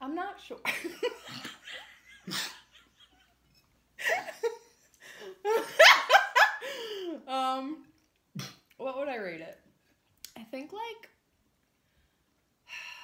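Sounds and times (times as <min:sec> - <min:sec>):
woman laughing: 0:00.6 - 0:07.2.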